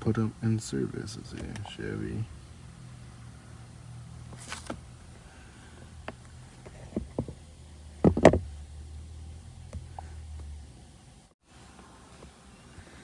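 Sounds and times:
loud thumps: 8.0 - 8.6.

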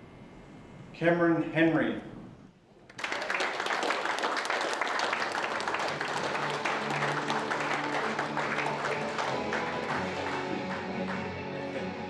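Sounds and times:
crowd applauding: 2.9 - 12.0
background music: 5.3 - 12.0.

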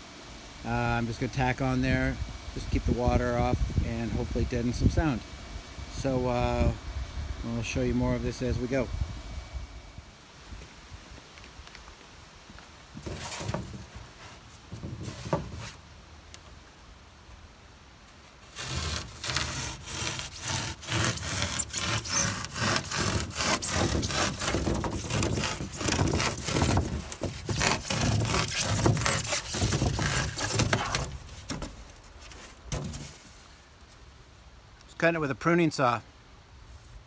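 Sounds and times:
saw rasping through foam board: 18.4 - 31.8.

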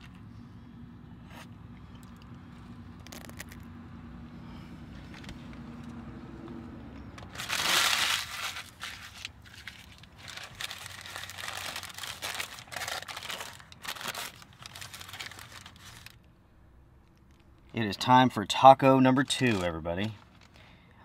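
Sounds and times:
paper wrapper crinkling: 3.0 - 3.6, 7.2 - 16.2, 19.2 - 20.6.

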